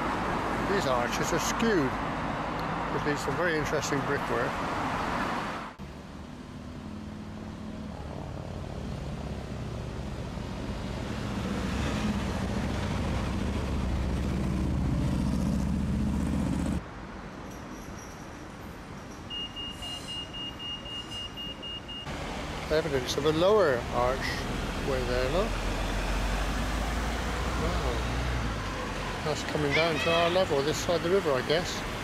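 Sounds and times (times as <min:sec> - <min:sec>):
street noise: 0:00.0 - 0:32.0
motor vehicle engine: 0:05.8 - 0:16.8.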